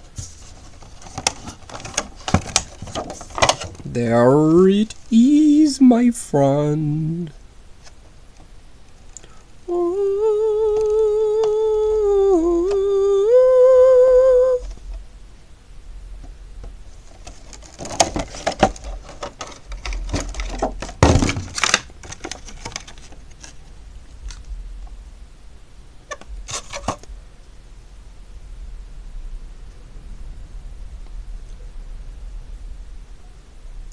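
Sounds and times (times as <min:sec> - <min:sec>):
plastic packaging crackling: 0:00.4 - 0:03.9, 0:16.9 - 0:24.5
man humming: 0:03.8 - 0:07.4, 0:09.6 - 0:14.7.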